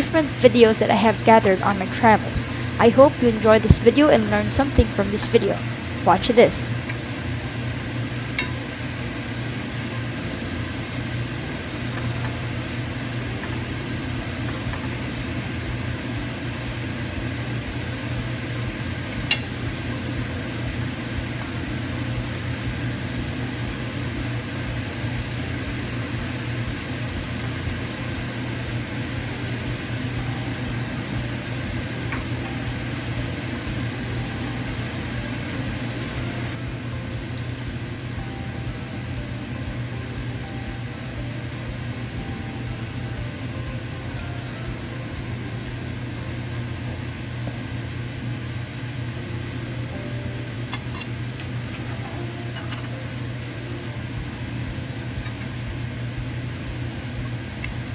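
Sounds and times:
gas stove hum and hiss: 0.0 - 57.9.

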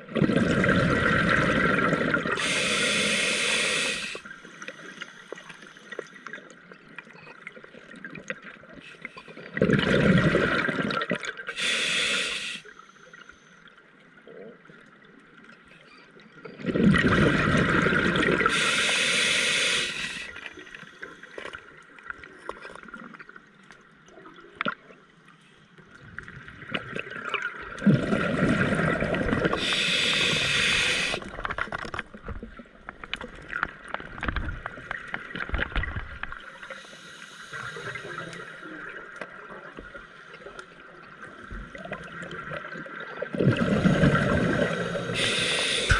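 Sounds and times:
exhaled bubbles rumbling: 0.0 - 2.4, 9.5 - 11.4, 16.6 - 18.5, 26.0 - 32.6, 41.1 - 45.9
diver breathing through regulator: 2.4 - 5.9, 11.5 - 12.9, 18.4 - 21.4, 29.4 - 31.3, 43.6 - 45.9.

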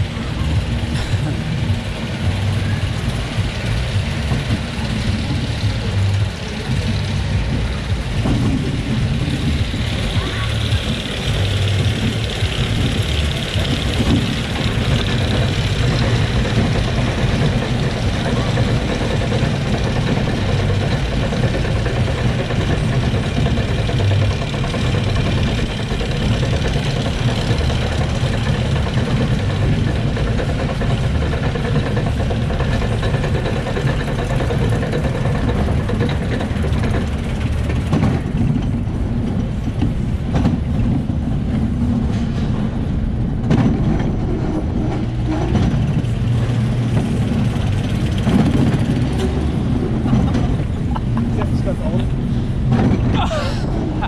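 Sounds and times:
lift chain rumble and clatter: 0.0 - 54.0.

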